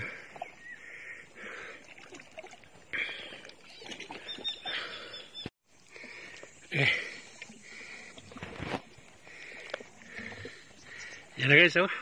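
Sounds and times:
sea water sloshing and splashing: 1.4s - 4.9s.

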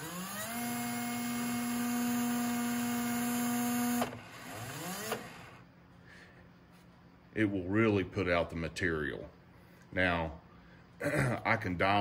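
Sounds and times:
adhesive gun motor whining: 0.0s - 5.6s
motor whirring with rising pitch: 0.0s - 5.6s.

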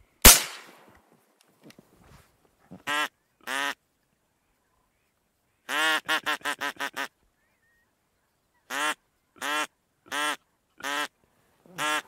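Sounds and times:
duck quacking: 5.7s - 7.1s, 8.7s - 11.1s, 11.7s - 12.0s.

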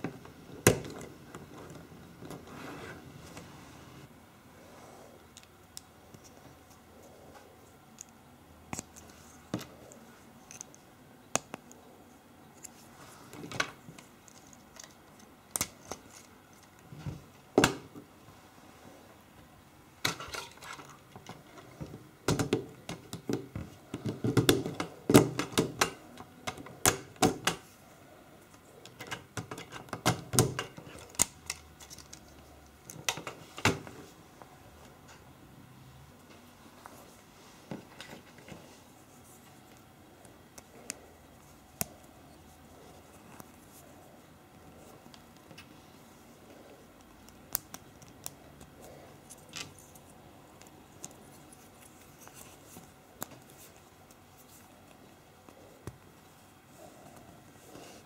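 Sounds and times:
plastic parts clicking and clattering: 20.0s - 27.6s.

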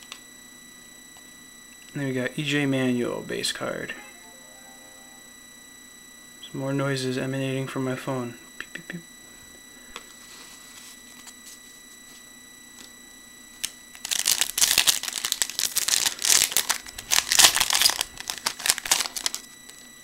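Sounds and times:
computer fan whine: 0.0s - 20.0s
card pack wrapper tearing: 14.0s - 19.4s.

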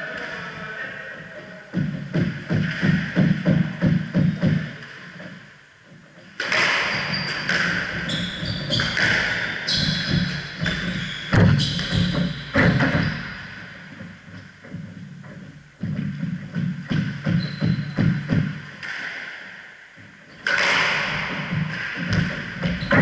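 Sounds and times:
voices: 0.0s - 1.9s
squash ball knocking against walls: 6.4s - 13.3s
shoes squeaking on wooden floor: 6.8s - 18.7s, 21.2s - 23.0s.

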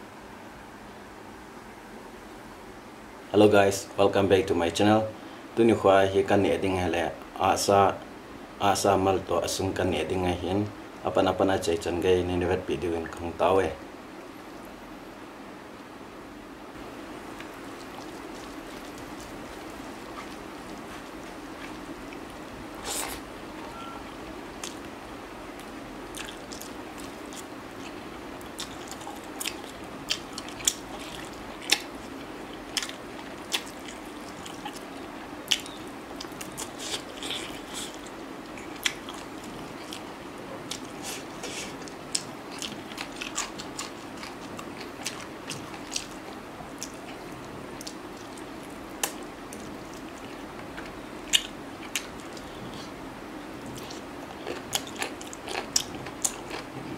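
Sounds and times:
low background hiss: 0.0s - 56.9s
man chewing food: 16.8s - 56.9s
sharp mouth clicks and smacks: 49.0s - 50.2s.

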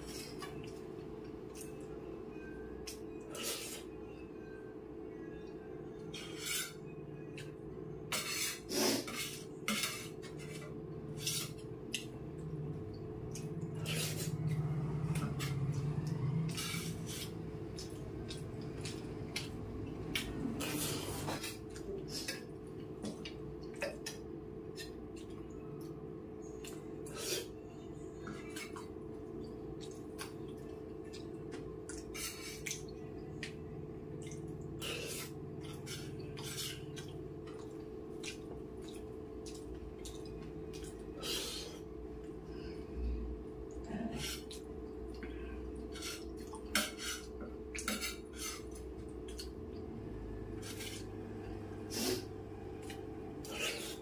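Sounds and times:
spoon scraping metal plate: 6.1s - 6.9s, 8.1s - 11.6s
low hum: 10.2s - 46.5s.

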